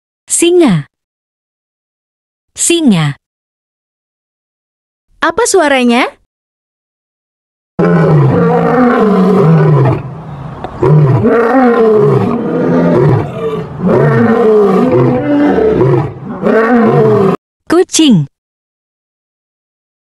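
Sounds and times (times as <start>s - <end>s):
lion roaring: 7.8s - 17.4s.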